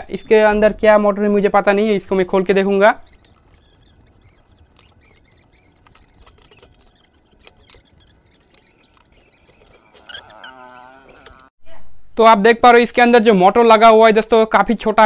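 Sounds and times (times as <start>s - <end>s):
handling clicks and scrapes: 3.0s - 11.5s.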